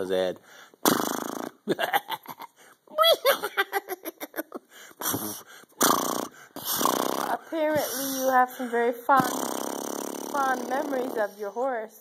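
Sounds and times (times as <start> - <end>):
man giggling and laughing: 1.6 - 5.4
breathy blows: 4.6 - 11.5.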